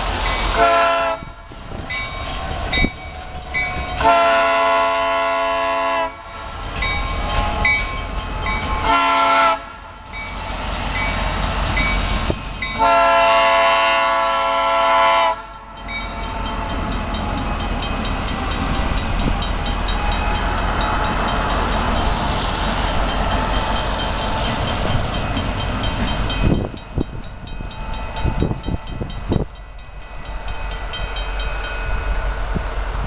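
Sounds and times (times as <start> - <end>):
train cars rumbling over rails: 0.0 - 33.0
locomotive horn blasts: 0.6 - 1.4, 4.0 - 6.4, 8.8 - 9.8, 12.8 - 15.6.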